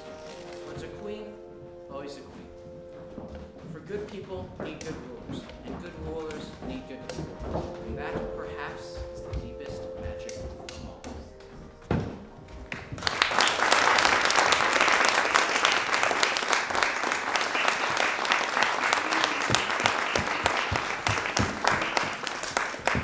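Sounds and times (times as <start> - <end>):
audience applause: 12.7 - 23.0.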